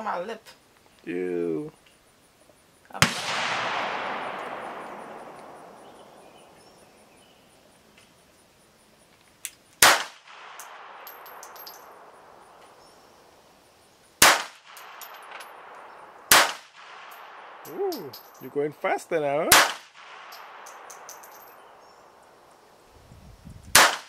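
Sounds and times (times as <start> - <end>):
pistol shots with echo: 3.0 - 6.6, 9.8 - 12.4, 14.2 - 15.7, 16.3 - 18.3, 19.5 - 21.6, 23.8 - 24.0.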